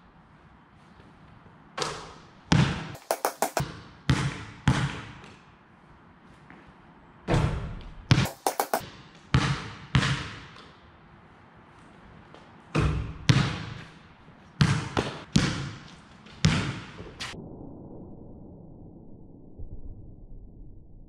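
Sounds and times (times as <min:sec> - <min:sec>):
basketball bouncing on concrete: 0:01.8 - 0:05.3, 0:08.1 - 0:10.7, 0:12.8 - 0:13.9, 0:14.6 - 0:17.1.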